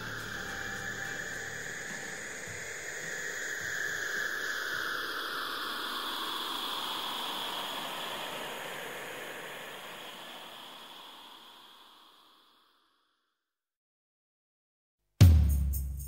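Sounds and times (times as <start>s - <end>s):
whooshing hiss sweeping downward: 0.0s - 12.8s.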